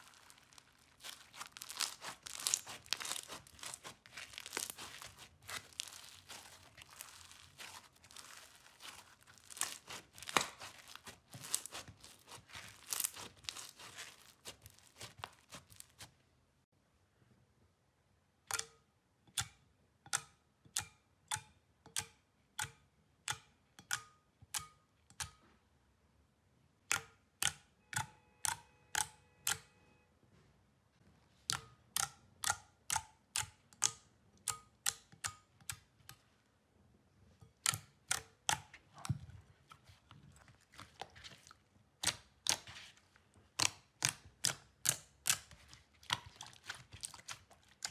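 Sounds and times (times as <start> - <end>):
slime crackling when squeezed: 0.0 - 16.1
jelly slime popping: 0.0 - 16.2, 37.6 - 47.9.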